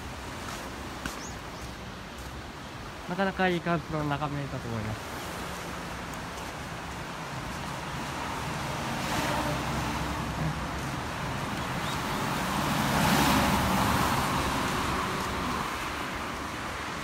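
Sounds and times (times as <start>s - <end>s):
road traffic: 0.0s - 17.0s
car passing by: 5.1s - 17.0s.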